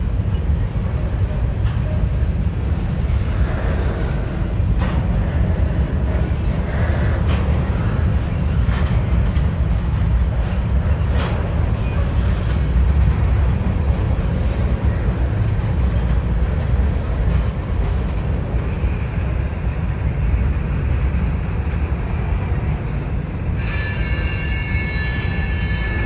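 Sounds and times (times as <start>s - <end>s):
train wheels rumbling on rail: 0.0s - 26.0s
high-pitched wheel squeal: 23.6s - 26.0s.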